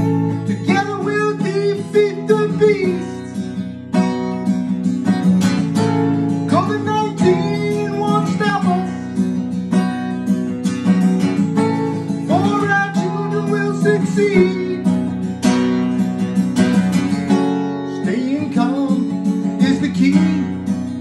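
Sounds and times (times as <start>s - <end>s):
man singing: 0.0s - 4.1s, 5.8s - 10.0s, 11.4s - 15.2s, 17.7s - 21.0s
acoustic guitar strumming: 0.0s - 21.0s.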